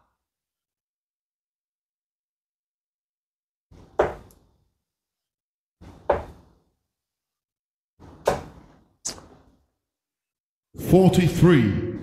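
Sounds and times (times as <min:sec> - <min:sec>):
darts thudding into dartboard: 0:03.8 - 0:04.4, 0:05.8 - 0:06.6, 0:08.0 - 0:09.3.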